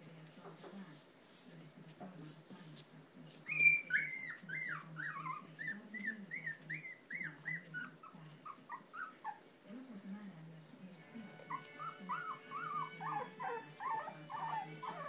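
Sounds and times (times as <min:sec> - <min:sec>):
puppy whimpering: 0:03.4 - 0:09.4, 0:11.5 - 0:15.0.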